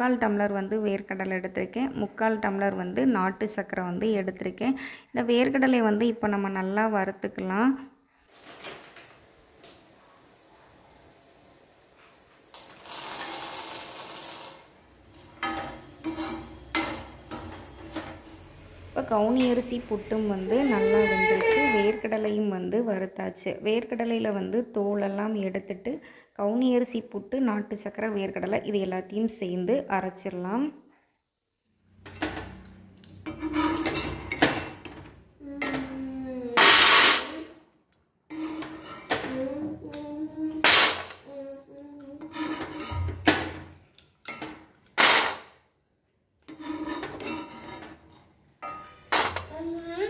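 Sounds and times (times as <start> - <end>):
metal spoon clinking: 12.5 - 14.7, 46.5 - 49.4
nuts rattling onto plate: 12.6 - 14.7
spatula scraping metal pan: 15.4 - 18.3, 33.3 - 34.5, 36.6 - 37.4, 38.3 - 39.4, 42.1 - 43.4, 46.5 - 48.0.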